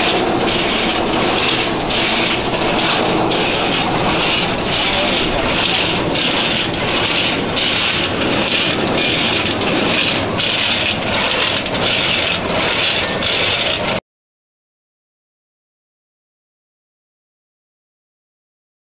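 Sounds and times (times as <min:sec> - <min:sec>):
cutter machine clattering: 0:00.0 - 0:14.0.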